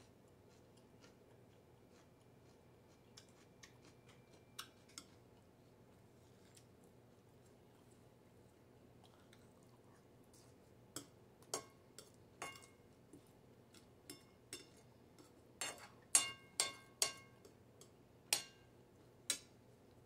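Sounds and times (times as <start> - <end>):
metal spoon clinking on plate: 11.0 - 12.8, 14.1 - 18.7.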